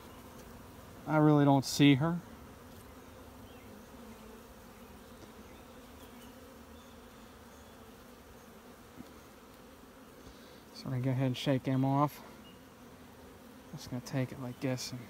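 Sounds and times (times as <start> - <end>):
bees buzzing: 0.0 - 15.0.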